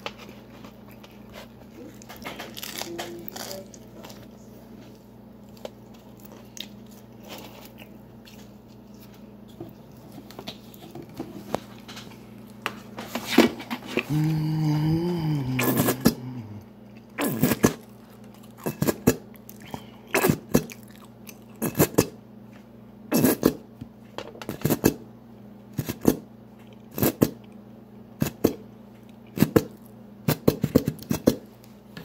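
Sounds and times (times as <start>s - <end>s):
person chewing crunchy food: 0.0s - 13.0s, 13.9s - 22.2s
low steady hum: 0.0s - 32.0s.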